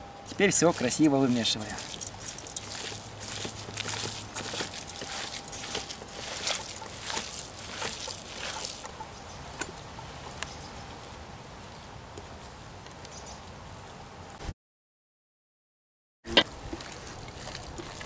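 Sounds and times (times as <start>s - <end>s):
wet squishing of kneaded mince: 0.3s - 9.0s, 16.7s - 18.0s.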